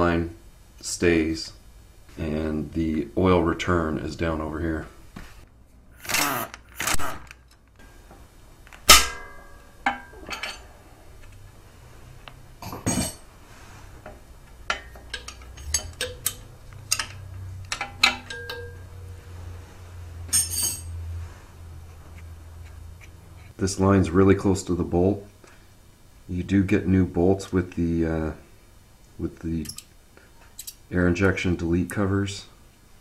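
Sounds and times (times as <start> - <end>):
wrench clicking on metal: 14.7 - 18.7.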